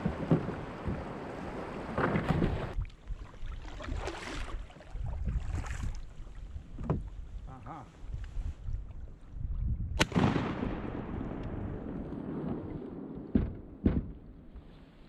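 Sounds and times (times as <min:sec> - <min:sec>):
wind on microphone: 0:00.0 - 0:03.3, 0:04.9 - 0:14.7
kayak paddle splashing: 0:00.0 - 0:09.5.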